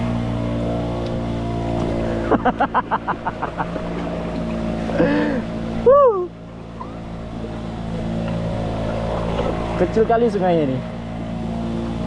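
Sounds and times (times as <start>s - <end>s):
small boat motor running: 0.0s - 12.0s
person shouting: 5.8s - 6.4s.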